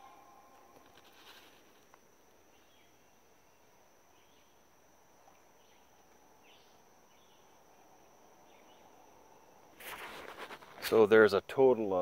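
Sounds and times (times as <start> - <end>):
high insect drone: 0.0 - 12.0
insect chirps: 0.0 - 12.0.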